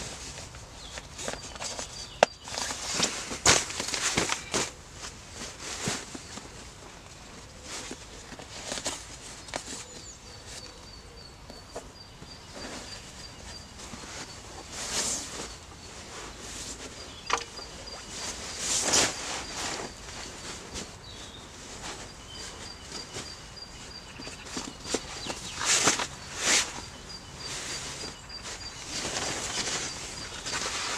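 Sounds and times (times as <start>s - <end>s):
sleeping bag fabric rustling: 12.4s - 30.9s.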